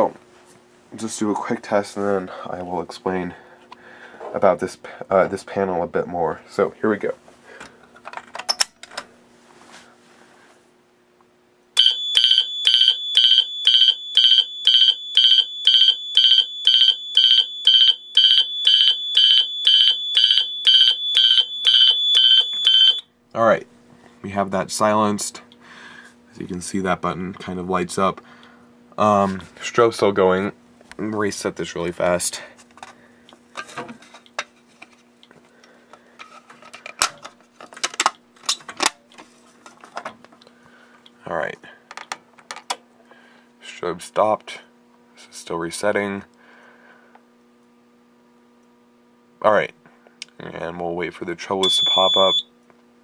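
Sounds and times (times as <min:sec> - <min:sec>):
fire alarm horn pulsing: 0:11.8 - 0:23.0, 0:51.6 - 0:52.5
high-pitched piezo buzzer tone: 0:11.8 - 0:23.0, 0:51.6 - 0:52.5.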